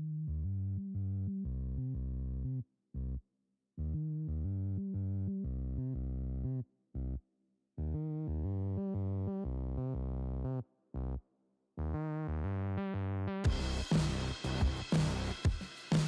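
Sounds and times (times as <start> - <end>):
deep synth bass: 0.0 - 3.2, 3.8 - 7.2, 7.8 - 11.2, 11.8 - 15.5
synthesizer chords: 11.8 - 15.5.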